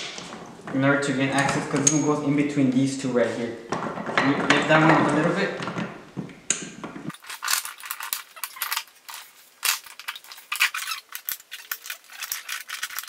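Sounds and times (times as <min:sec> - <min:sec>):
metal gears clicking: 0:07.1 - 0:13.0.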